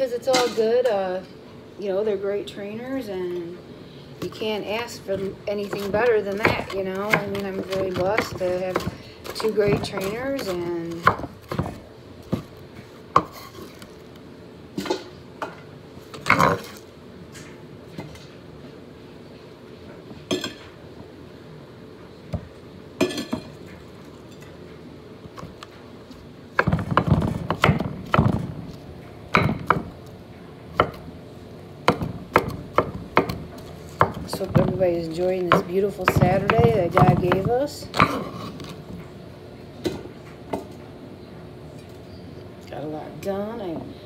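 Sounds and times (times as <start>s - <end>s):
knife chopping on wooden board: 5.6s - 12.5s, 26.6s - 28.5s, 29.3s - 29.9s, 31.8s - 34.8s, 35.5s - 38.8s.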